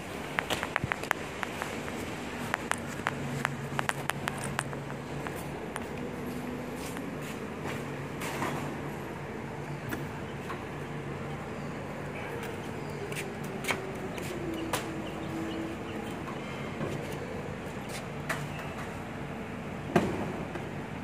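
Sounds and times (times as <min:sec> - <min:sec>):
humming tone: 0:09.0 - 0:17.7.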